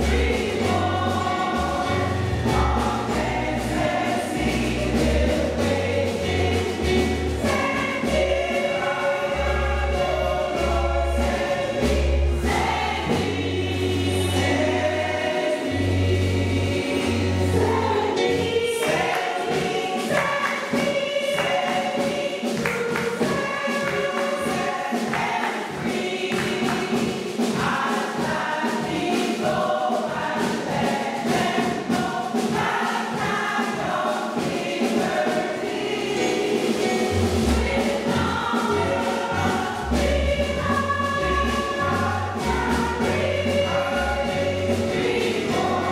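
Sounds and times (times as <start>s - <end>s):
low bass notes: 0.0s - 18.0s, 36.9s - 45.9s
choir singing gospel: 0.0s - 45.9s.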